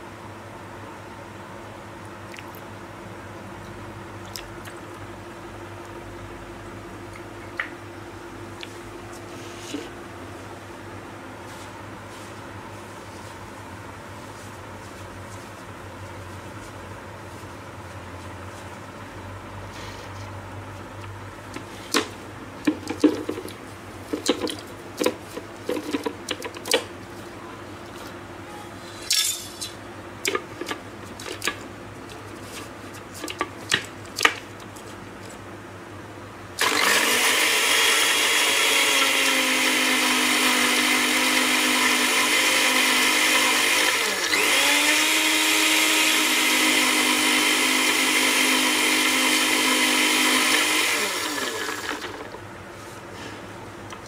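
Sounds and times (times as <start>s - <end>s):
blender motor whining: 36.6s - 52.4s.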